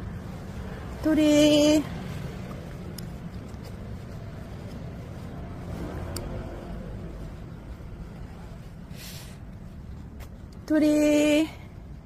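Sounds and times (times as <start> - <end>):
street background rumble: 0.0 - 12.0
faint clicks: 2.5 - 3.7.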